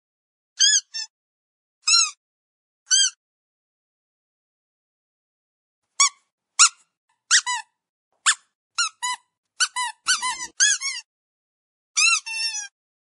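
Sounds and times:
squeaky dog toy squeaking: 0:00.6 - 0:01.1, 0:01.8 - 0:02.2, 0:02.9 - 0:03.2, 0:06.0 - 0:11.1, 0:12.0 - 0:12.7.

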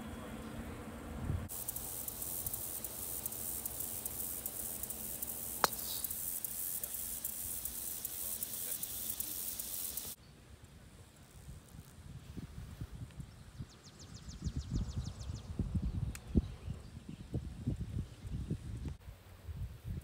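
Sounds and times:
insects buzzing: 0:01.4 - 0:10.2
golf club striking ball: 0:05.5 - 0:06.2.

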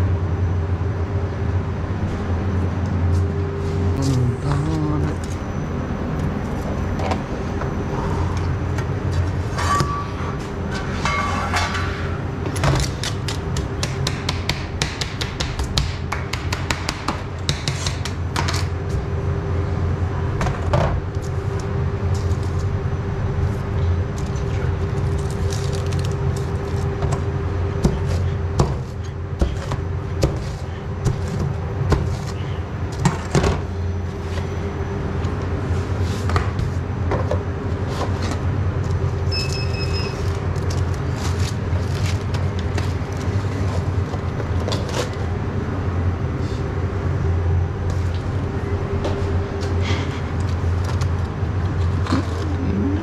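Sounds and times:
kitchen machinery hum: 0:00.0 - 0:53.0
brief high tone: 0:04.0 - 0:05.6.

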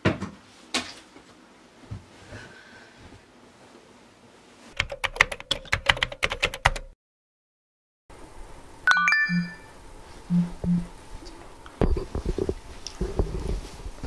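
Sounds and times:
typing on computer keyboard: 0:04.8 - 0:06.9
short electronic chime: 0:08.9 - 0:09.7.

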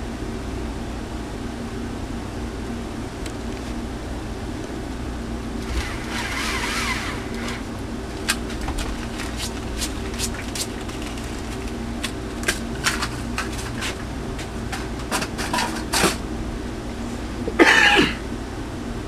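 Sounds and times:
steady low hum: 0:00.0 - 0:19.0
loud clatter: 0:05.6 - 0:11.8.

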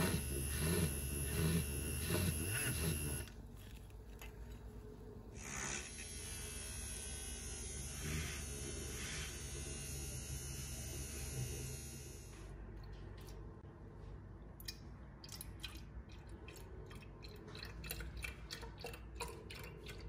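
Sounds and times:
milk frother whirring: 0:00.0 - 0:04.2.

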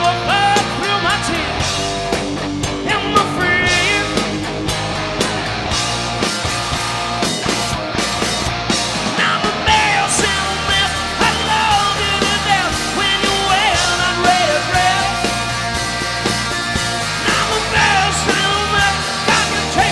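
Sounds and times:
person singing lead vocal: 0:00.0 - 0:01.9, 0:02.7 - 0:04.5, 0:09.1 - 0:15.6, 0:17.1 - 0:19.9
bass guitar: 0:00.0 - 0:19.9
drums: 0:00.0 - 0:19.9
electric guitars: 0:00.0 - 0:19.9.

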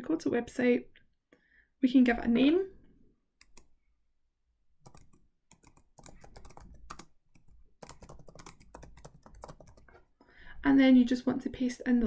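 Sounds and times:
typing on computer keyboard: 0:03.4 - 0:03.7, 0:04.8 - 0:10.0.

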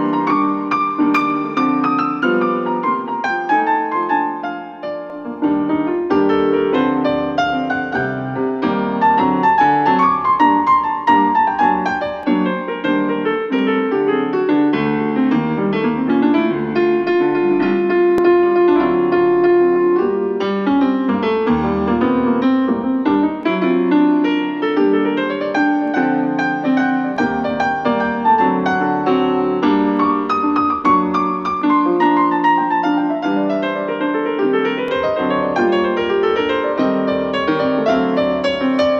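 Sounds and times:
piano instrumental music from speaker: 0:00.0 - 0:38.9.

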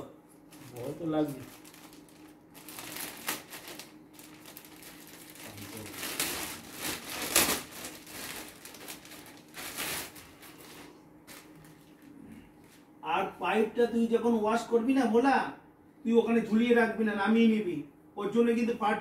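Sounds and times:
plastic bag rustling and crinkling: 0:00.5 - 0:12.2.

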